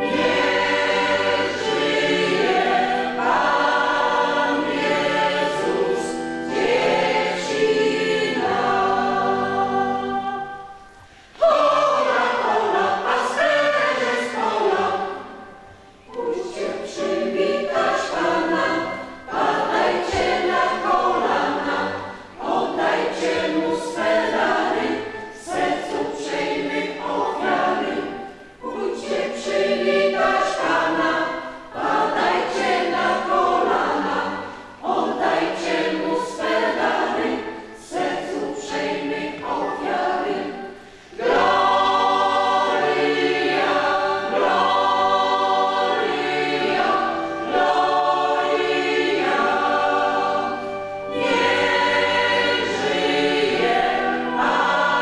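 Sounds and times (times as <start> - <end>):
choir singing a carol: 0.0 - 55.0.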